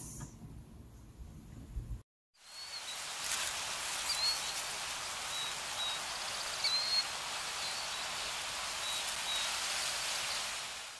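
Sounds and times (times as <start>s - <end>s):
airy hiss: 2.4s - 10.9s
high bird chirps: 4.0s - 8.2s.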